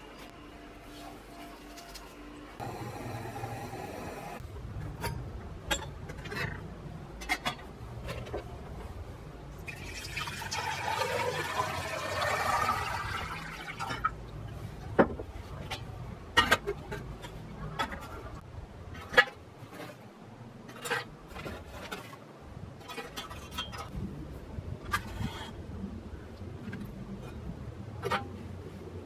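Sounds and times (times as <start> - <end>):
water pouring into samovar: 9.6 - 14.2.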